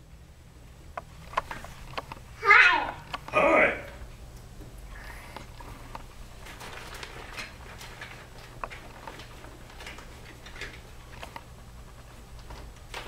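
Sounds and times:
low steady hum: 0.0 - 13.0
plastic toys clicking and rustling: 5.3 - 13.0.

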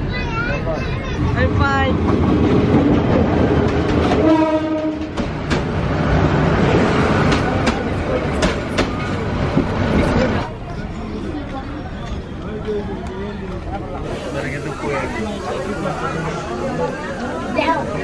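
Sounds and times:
train rumbling past: 0.0 - 18.0
train horn blast: 4.1 - 5.1.

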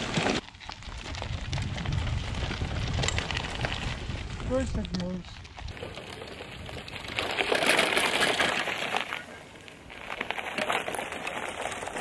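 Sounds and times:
wheelchair tires crunching on gravel: 0.0 - 12.0.

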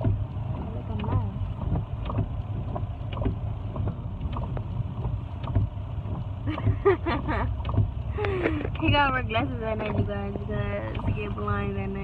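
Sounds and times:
light ticks and knocks: 0.0 - 8.9
car cabin rumble: 0.0 - 12.0.

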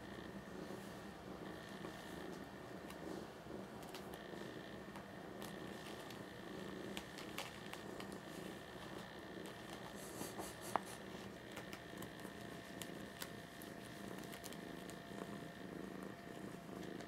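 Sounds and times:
cat purring: 0.0 - 17.0.

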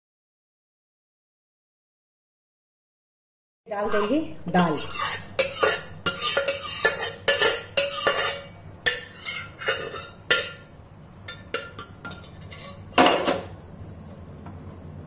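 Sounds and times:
spoon scraping steel pot: 3.8 - 10.7, 11.3 - 13.5.

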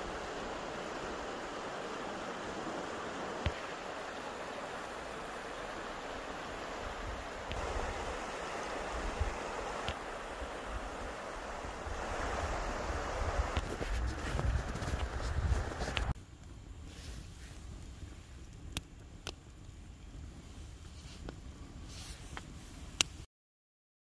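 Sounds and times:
stream rushing water: 0.0 - 16.2.

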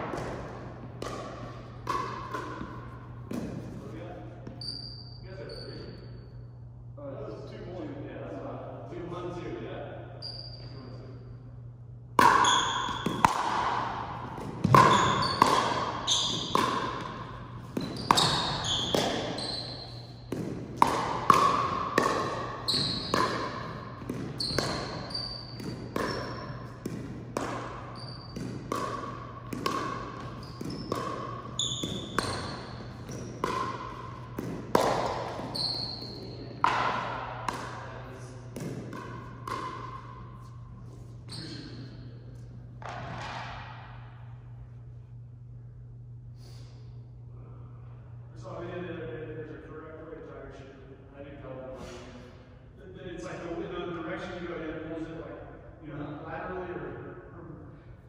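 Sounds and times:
paddle striking ball: 0.0 - 3.8, 12.2 - 19.4, 20.2 - 37.9, 38.5 - 40.2, 42.8 - 44.0
ball bouncing: 0.0 - 4.8, 12.2 - 44.1.

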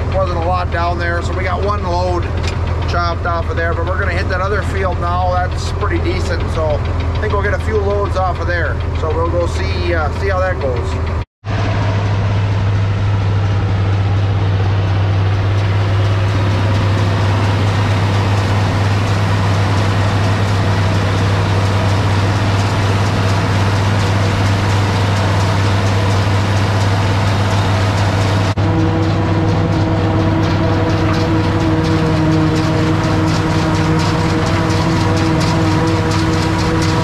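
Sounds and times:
tractor diesel engine droning: 0.0 - 37.0
forage harvester chopping: 12.8 - 37.0.

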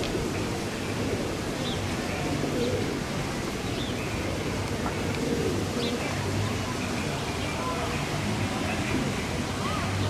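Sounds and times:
pigeons cooing: 0.0 - 6.9
small birds chirping: 0.0 - 10.0
street hum: 0.0 - 10.0.

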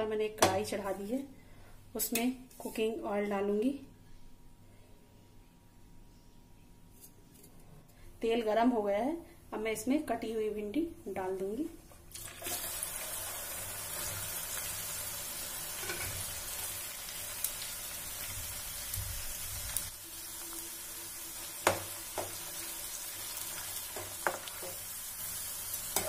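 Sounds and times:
okra sizzling in hot oil: 12.1 - 26.0.

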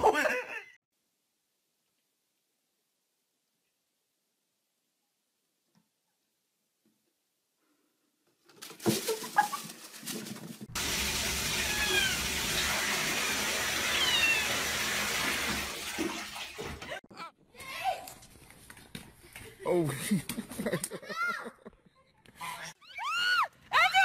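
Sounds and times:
cat meowing: 11.6 - 12.3, 13.8 - 14.6.

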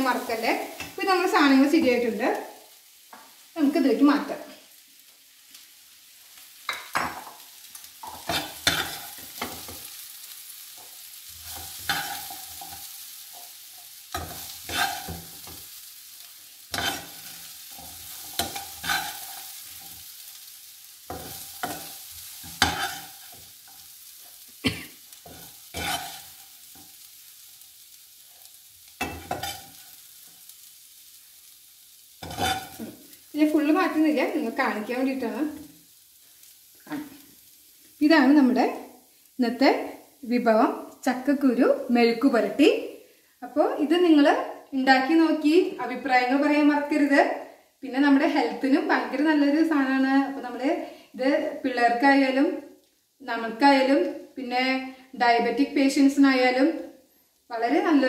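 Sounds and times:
faint sizzle: 0.0 - 58.0
metal spatula scraping frying pan: 8.0 - 9.8, 11.4 - 15.7, 16.7 - 20.0, 21.1 - 23.8, 25.2 - 27.0, 29.0 - 30.0, 32.2 - 33.0.

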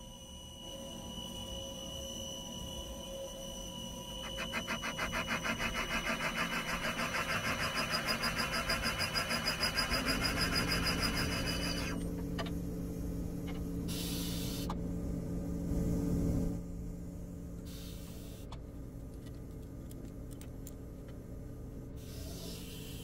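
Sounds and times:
brief air hiss: 13.9 - 14.7.

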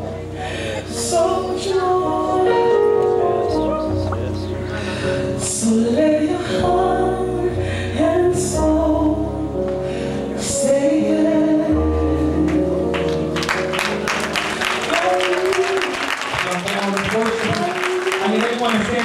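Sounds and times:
low bass notes: 0.0 - 15.1
woman singing gospel song: 1.0 - 3.0, 5.4 - 9.4, 10.4 - 13.0, 14.9 - 16.3
applause: 12.9 - 19.0.

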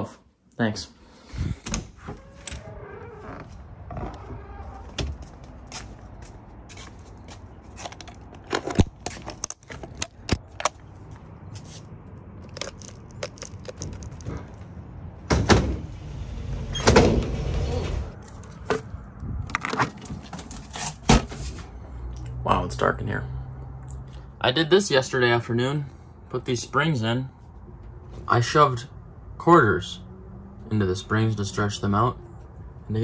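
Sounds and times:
house door opening: 1.6 - 5.3, 16.7 - 18.2.

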